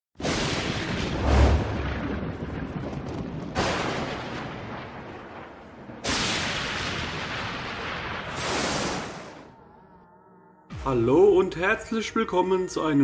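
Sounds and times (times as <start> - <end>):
cinematic boom hits: 0.3 - 2.6.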